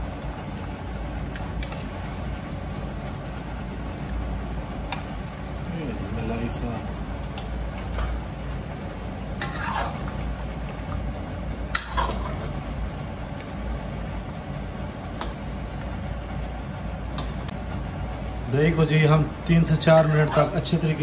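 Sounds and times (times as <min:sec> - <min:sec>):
low steady hum: 0:00.0 - 0:21.0
spoon stirring wet gravy: 0:06.9 - 0:15.9.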